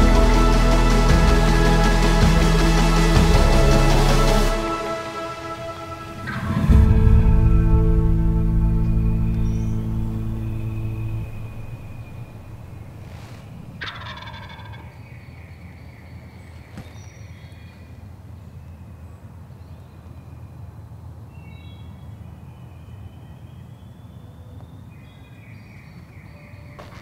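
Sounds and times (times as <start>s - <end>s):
low rumble: 0.0s - 13.8s
songbirds singing: 8.8s - 27.0s.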